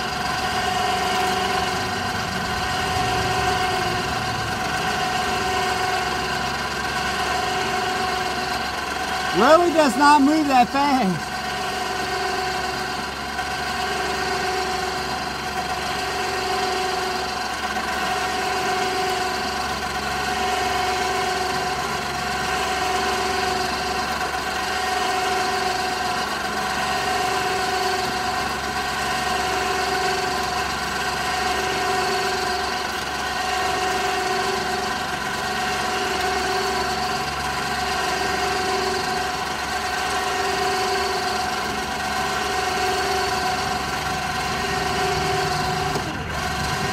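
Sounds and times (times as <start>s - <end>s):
winch motor whining: 0.0s - 46.9s.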